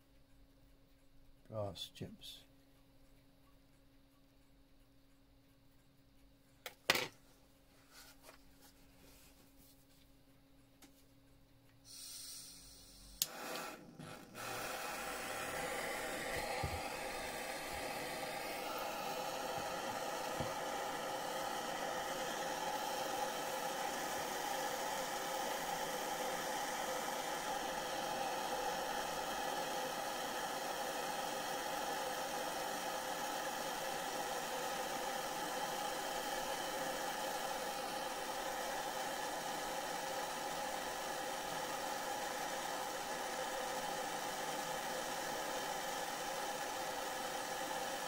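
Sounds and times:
blowtorch hissing: 11.9 - 48.0.

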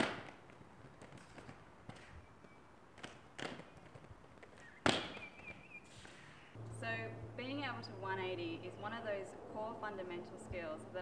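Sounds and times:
skate wheels clicking over joints: 0.0 - 6.3
skates landing with a clack: 0.0 - 6.3
roller skates rolling on paving: 0.0 - 6.6.

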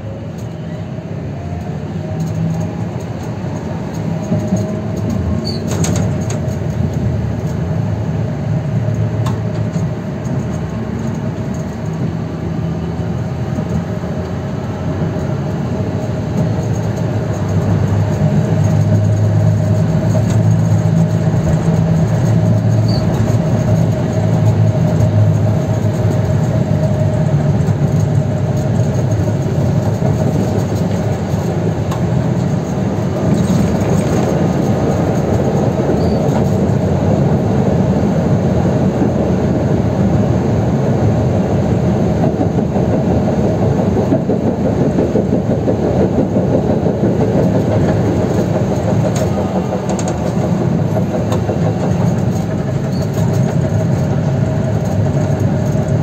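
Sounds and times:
tram wheels rumbling on track: 0.0 - 56.0.

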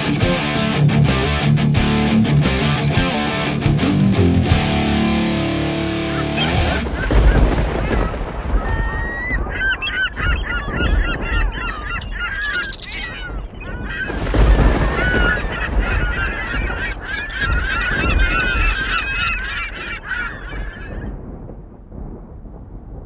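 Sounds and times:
low rumble: 0.0 - 23.0
loud noisy surge: 4.5 - 9.0, 14.0 - 19.8
flock of birds calling: 5.8 - 21.2.

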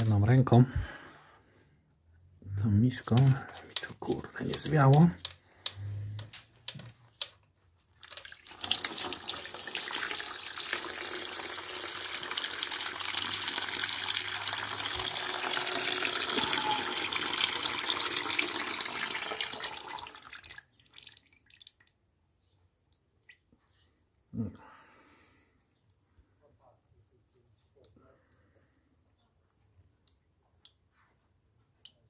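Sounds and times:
fluid splashing into drain pan: 7.9 - 21.9.

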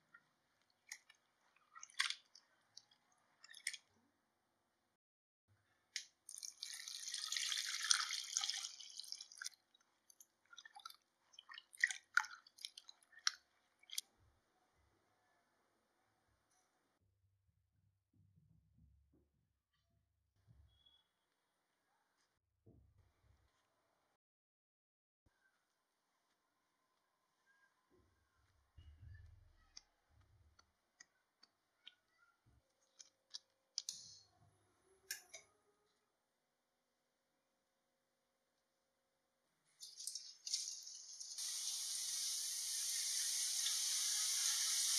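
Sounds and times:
water pouring into steel bowl: 6.3 - 9.6.

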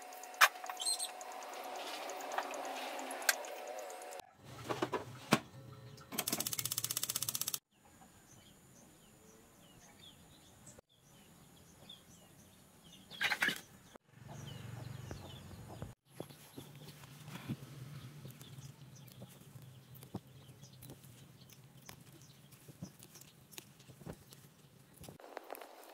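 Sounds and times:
small birds chirping: 0.0 - 4.2, 5.8 - 25.9
fast even rattle: 6.2 - 7.6.

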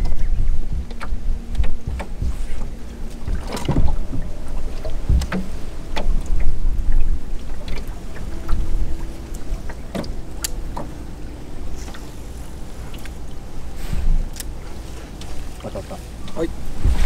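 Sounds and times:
water slapping against hull: 0.0 - 17.0
wind buffeting microphone: 0.0 - 17.0.

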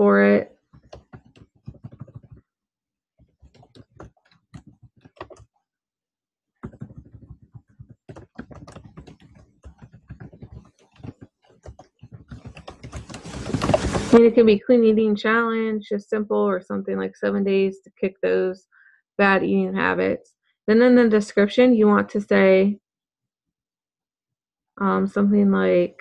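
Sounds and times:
typing on computer keyboard: 0.7 - 2.4, 3.2 - 5.5, 6.6 - 14.0.

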